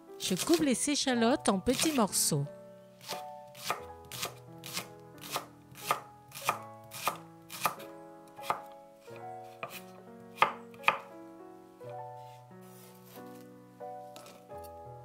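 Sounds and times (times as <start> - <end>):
soft background music: 0.0 - 15.0
knife chopping on wooden board: 1.7 - 2.0, 3.0 - 7.8, 8.4 - 8.7, 9.5 - 11.1.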